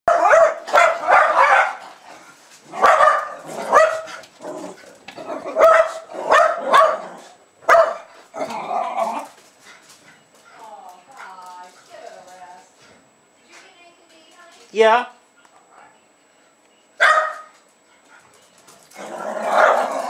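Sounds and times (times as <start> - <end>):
dogs barking excitedly: 0.1 - 10.0, 17.0 - 20.0.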